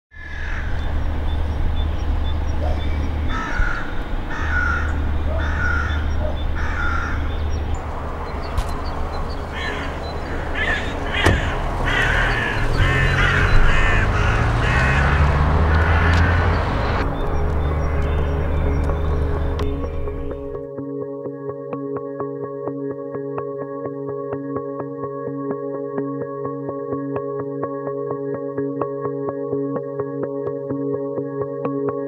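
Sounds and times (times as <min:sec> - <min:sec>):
crows cawing: 0:00.1 - 0:00.9, 0:03.3 - 0:07.5, 0:08.2 - 0:17.0
steady low rumble: 0:00.8 - 0:14.8, 0:15.4 - 0:20.7.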